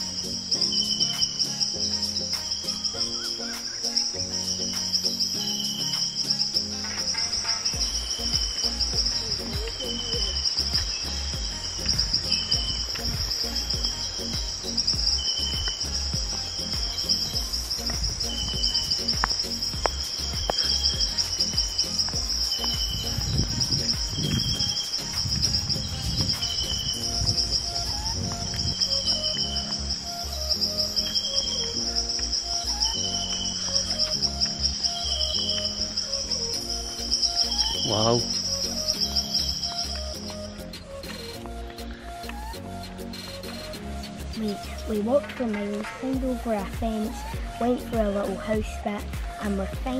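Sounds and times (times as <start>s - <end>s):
insect chorus: 0.0s - 49.9s.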